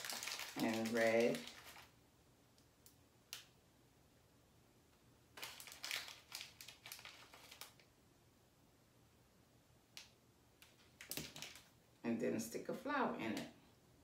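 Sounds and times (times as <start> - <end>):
plastic bag crinkling: 0.0 - 2.0, 5.4 - 7.9, 10.6 - 11.8.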